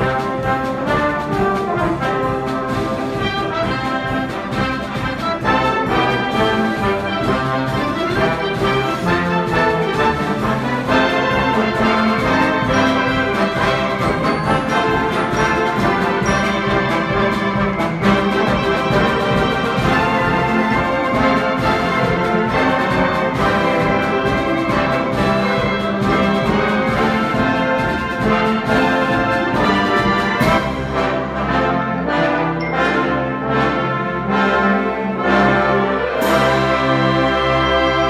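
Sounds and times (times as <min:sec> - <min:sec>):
concert band playing: 0:00.0 - 0:38.0.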